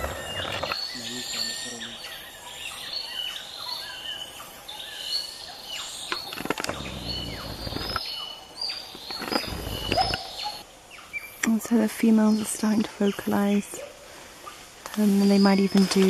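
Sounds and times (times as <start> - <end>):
gibbons calling: 6.4 - 8.0
low rumble: 6.7 - 8.0.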